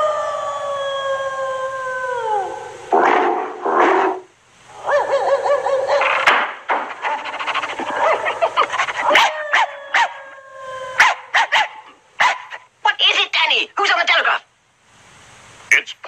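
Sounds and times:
dogs howling: 0:00.0 - 0:03.5, 0:04.1 - 0:06.3, 0:06.9 - 0:12.7
dogs barking: 0:03.0 - 0:10.3, 0:11.0 - 0:12.7.

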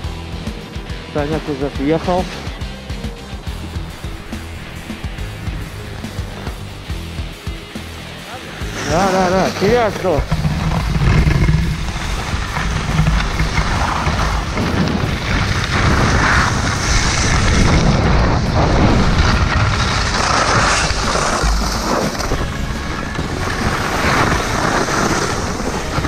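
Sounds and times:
hiss of sliding over snow: 0:07.8 - 0:26.0
wind buffeting microphone: 0:09.7 - 0:26.0.

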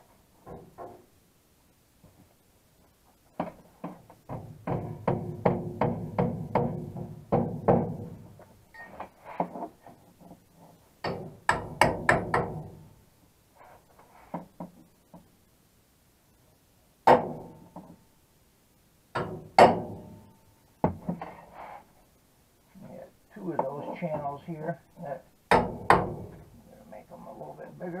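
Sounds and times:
hammer tapping on sheet metal: 0:04.3 - 0:08.2, 0:11.0 - 0:12.8, 0:19.2 - 0:20.1, 0:25.5 - 0:26.4.

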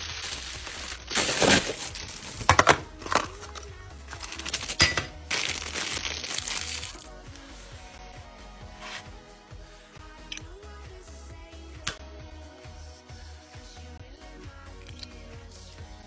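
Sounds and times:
packaging crinkling and rustling: 0:00.0 - 0:07.5
background music: 0:00.0 - 0:16.0.

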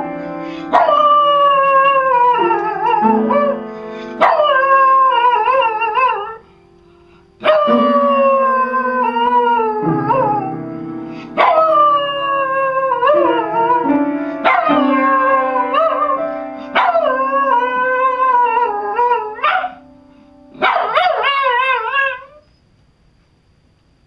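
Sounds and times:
piano notes: 0:00.0 - 0:21.9
dog howling: 0:00.7 - 0:03.6, 0:04.2 - 0:06.4, 0:07.4 - 0:10.6, 0:11.4 - 0:19.8, 0:20.6 - 0:22.4.

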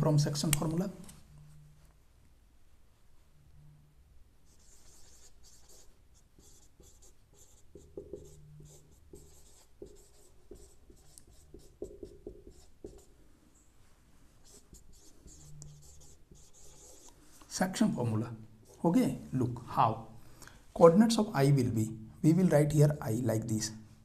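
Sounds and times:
marker writing on whiteboard: 0:04.5 - 0:13.7, 0:14.4 - 0:17.6.

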